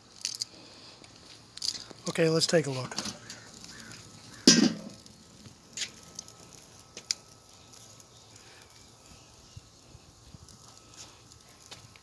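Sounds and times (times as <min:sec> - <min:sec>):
metal grill lid clanking: 0:02.9 - 0:05.1.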